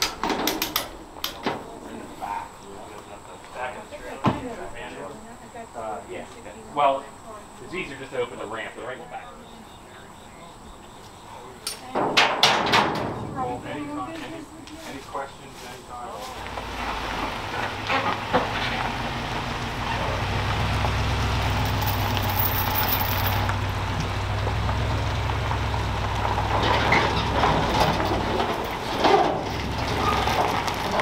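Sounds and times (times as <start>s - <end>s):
tyres crunching over gravel: 13.4s - 31.0s
truck engine running: 16.3s - 31.0s
trailer knocking: 23.4s - 31.0s.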